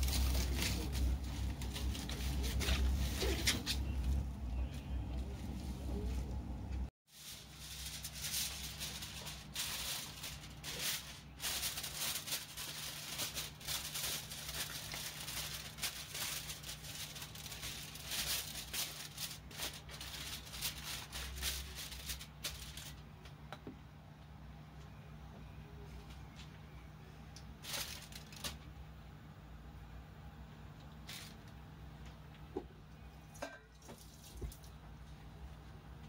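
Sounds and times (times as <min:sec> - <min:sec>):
aluminium foil crinkling: 0:00.0 - 0:04.2, 0:07.1 - 0:23.1, 0:27.6 - 0:28.7, 0:31.0 - 0:31.5, 0:33.8 - 0:34.7.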